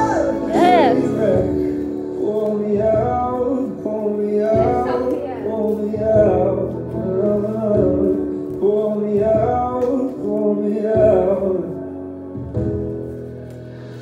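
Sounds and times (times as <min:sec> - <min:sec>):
man singing: 0:00.0 - 0:12.0
piano chords: 0:00.0 - 0:14.0
slow pop ballad: 0:00.0 - 0:14.0.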